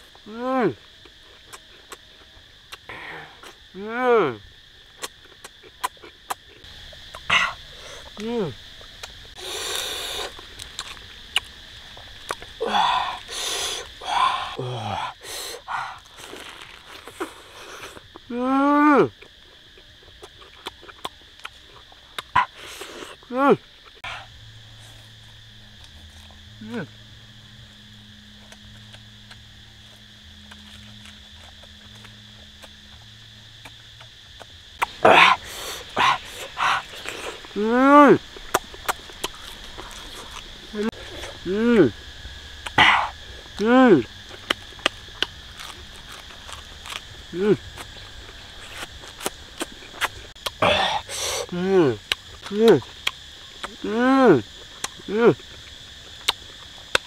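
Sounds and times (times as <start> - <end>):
faint insect drone: 0.0 - 57.0
falling vocal hum: 12.6 - 16.0, 40.7 - 42.0, 50.6 - 52.0, 53.7 - 54.4
lettuce leaves crunching: 16.0 - 17.9, 33.6 - 41.5.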